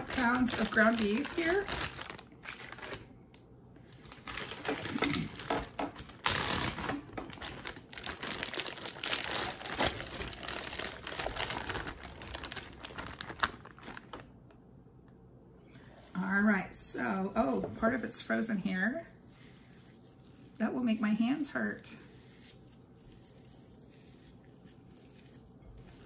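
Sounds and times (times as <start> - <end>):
plastic bag crinkling: 0.0 - 3.1, 3.9 - 14.4.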